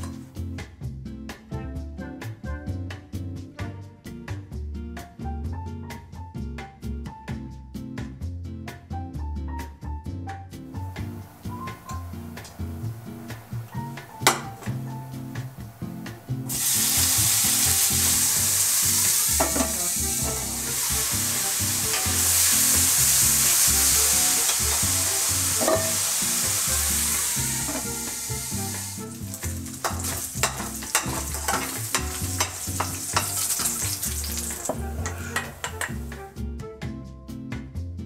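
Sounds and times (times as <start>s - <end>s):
sharp clicks of frying: 10.9s - 36.2s
bacon sizzling in a pan: 11.0s - 36.2s.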